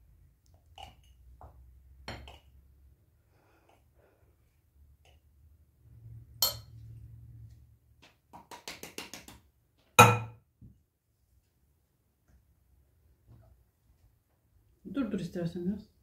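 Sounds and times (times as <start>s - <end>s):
ringing glass clink: 6.4s - 6.7s
metal spoon clinking glass: 6.4s - 6.8s.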